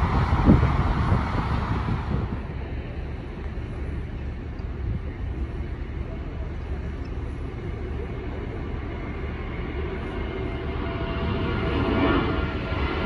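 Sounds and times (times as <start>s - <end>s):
jet engines rumbling: 0.0s - 13.0s.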